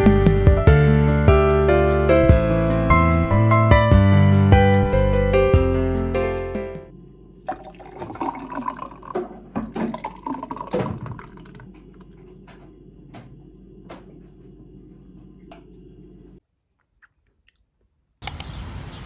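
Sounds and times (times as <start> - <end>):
background music: 0.0 - 6.9
liquid splashing: 7.4 - 12.4
sharp clicks: 18.2 - 18.6.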